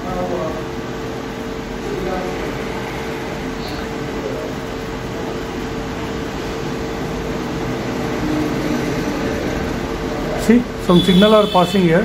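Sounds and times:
mechanical hum and hiss: 0.0s - 12.0s.

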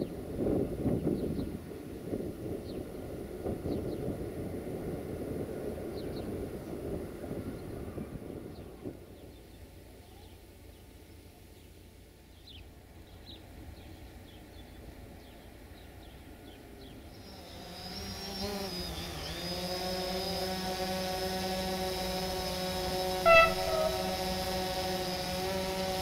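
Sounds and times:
diesel train engine drone: 18.9s - 26.0s
faint short chirps: 23.3s - 24.2s.

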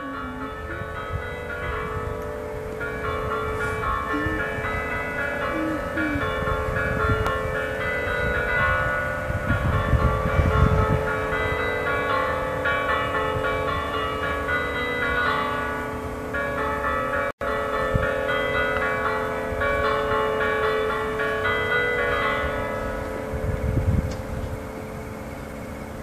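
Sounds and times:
church bells ringing: 0.0s - 26.0s.

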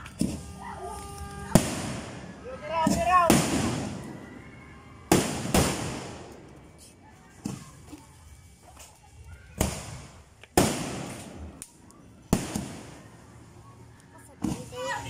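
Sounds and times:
fireworks bursting with bangs: 0.0s - 4.2s, 5.0s - 7.9s, 9.5s - 13.3s
small fireworks pops: 0.0s - 4.2s, 5.1s - 14.9s.

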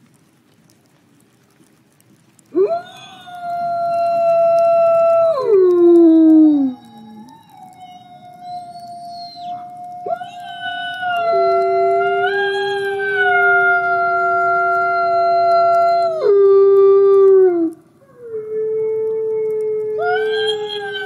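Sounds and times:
wolves howling: 2.5s - 21.0s.

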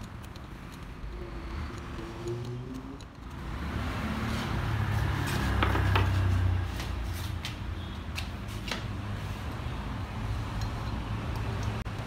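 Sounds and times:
metal clicks and clinks: 0.0s - 3.4s, 10.5s - 12.0s.

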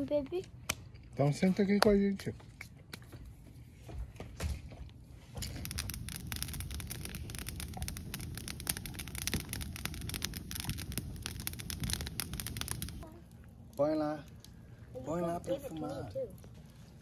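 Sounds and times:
campfire crackling and popping: 5.3s - 16.7s.

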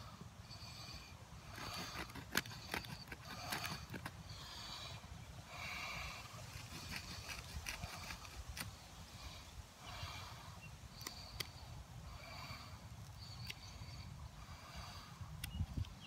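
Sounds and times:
knife sawing through stick: 1.4s - 4.2s, 6.4s - 8.7s.

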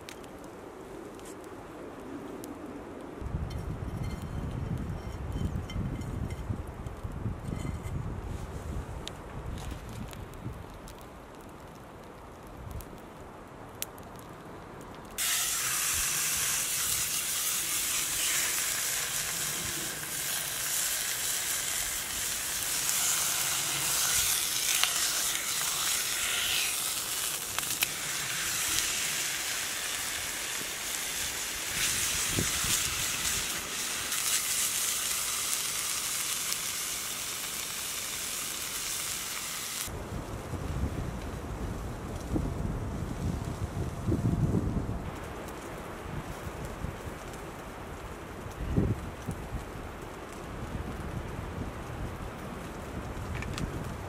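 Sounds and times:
steak sizzling in frying pan: 15.2s - 39.9s.

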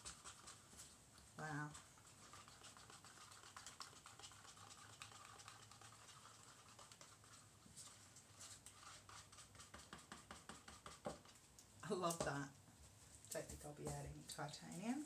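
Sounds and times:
stirrer scraping plastic cup: 0.0s - 11.4s.

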